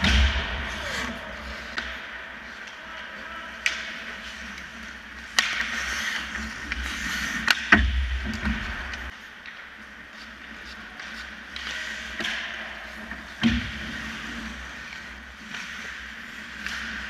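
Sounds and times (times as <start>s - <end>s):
heavy low thud: 0.0s - 0.9s
hockey sticks and puck clacking: 0.0s - 17.0s
skates scraping on ice: 0.0s - 17.0s.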